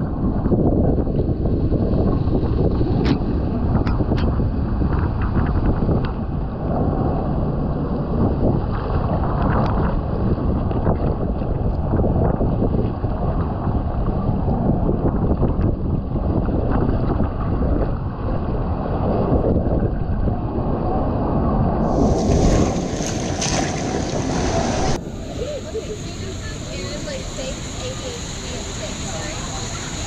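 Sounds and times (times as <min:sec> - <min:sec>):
tube rumbling on slide: 0:00.0 - 0:27.2
wind buffeting microphone: 0:00.0 - 0:30.0
rushing water: 0:21.8 - 0:30.0.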